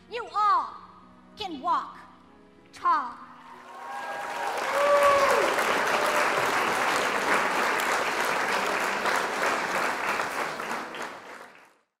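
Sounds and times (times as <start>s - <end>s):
audience applauding: 3.6s - 11.9s.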